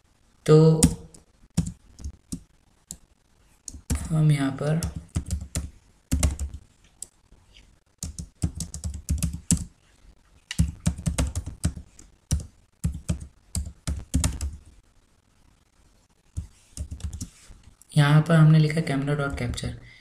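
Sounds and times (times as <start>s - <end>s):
keyboard typing clicks: 8.0s - 9.7s.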